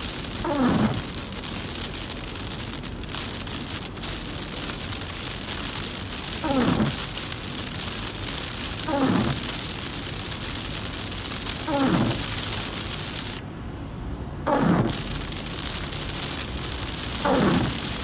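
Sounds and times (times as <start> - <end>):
heavy rain on car: 0.0 - 13.4, 14.5 - 18.0
windshield wipers sweeping: 0.1 - 13.4, 14.5 - 18.0.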